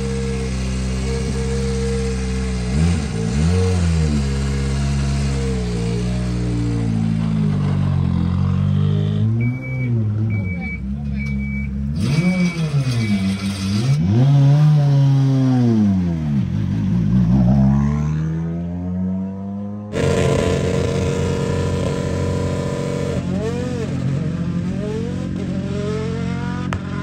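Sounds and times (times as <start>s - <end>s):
car engine revving: 0.0s - 10.6s, 11.3s - 27.0s
engine throttle blips: 9.2s - 13.5s.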